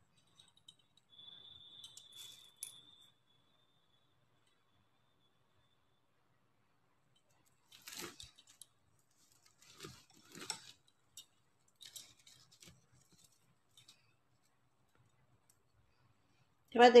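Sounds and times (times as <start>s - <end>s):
plastic beads rustling and clicking: 7.2s - 15.8s.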